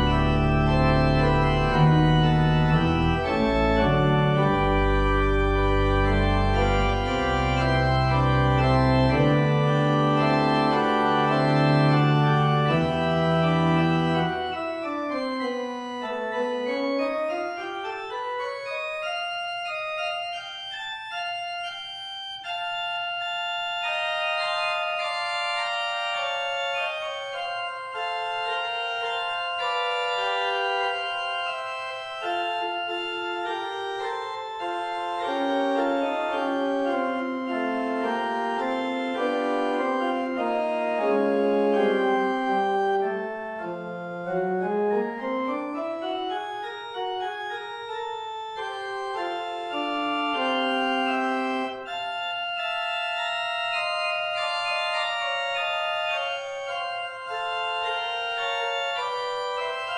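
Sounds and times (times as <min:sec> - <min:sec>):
church organ chords: 0:00.0 - 0:59.9
low organ pedal notes: 0:00.0 - 0:59.9.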